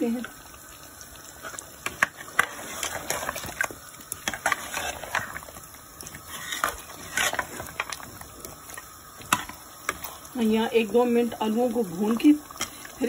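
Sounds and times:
metal ladle clinking and scraping pot: 1.8 - 5.4, 6.2 - 8.1.

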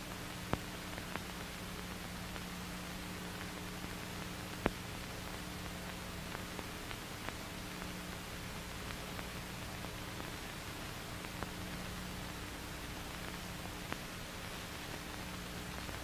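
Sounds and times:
film soundtrack hiss and hum: 0.0 - 16.0.

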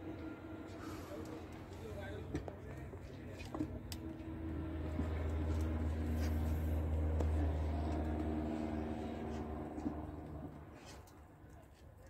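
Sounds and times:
vehicle engine humming: 0.0 - 11.6.

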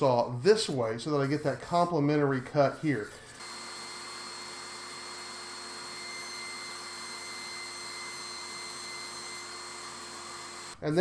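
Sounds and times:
table saw cutting foam board: 2.6 - 11.0.

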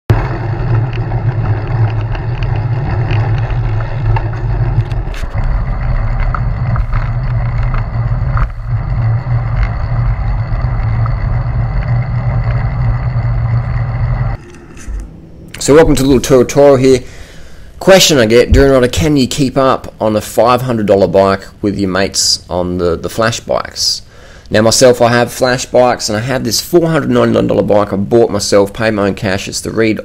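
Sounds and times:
wind buffeting microphone: 0.1 - 19.0
road rumble: 0.1 - 19.1.

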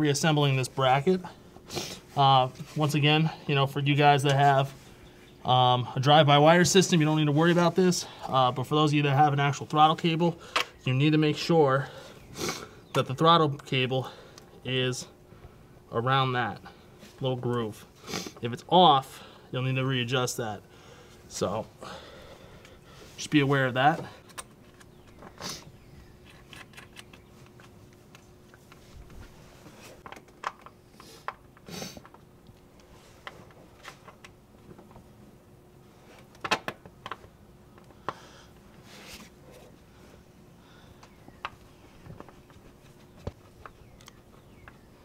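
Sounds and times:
faint steady hum: 0.0 - 45.0
small clicks and knocks of parts: 24.0 - 25.4, 26.2 - 29.2, 30.0 - 35.1, 36.2 - 38.7, 41.0 - 44.8.

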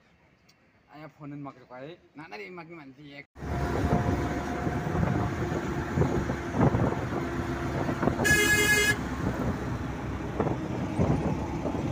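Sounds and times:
road and engine noise: 3.4 - 11.9
vehicle horn toot: 8.2 - 9.1.

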